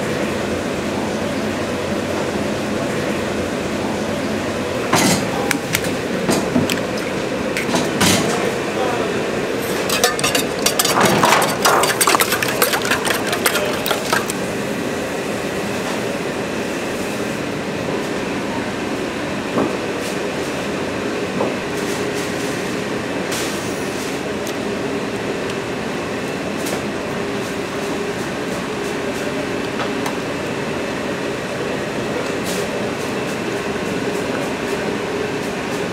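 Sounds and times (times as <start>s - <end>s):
burners and ventilation roar: 0.0s - 35.9s
metal cookware clattering: 9.7s - 14.3s.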